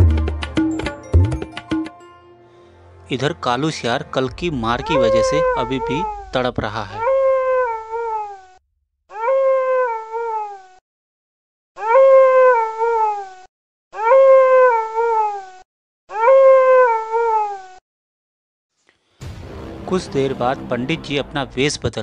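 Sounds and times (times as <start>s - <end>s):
jackal howling: 4.6s - 8.5s.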